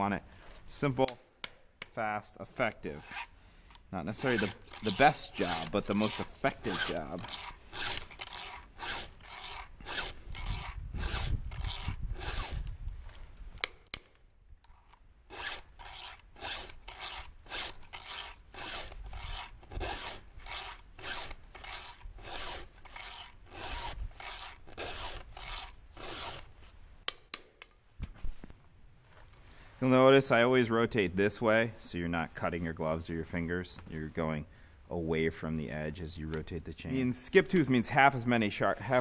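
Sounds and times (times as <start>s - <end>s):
file rasping on saw chain: 3.0s - 3.3s, 4.1s - 12.7s, 14.7s - 26.5s.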